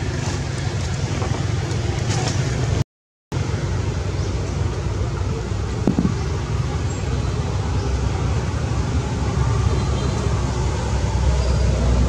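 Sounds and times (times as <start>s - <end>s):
low outdoor rumble: 0.0s - 2.8s, 3.4s - 12.0s
brief knock: 5.8s - 6.2s.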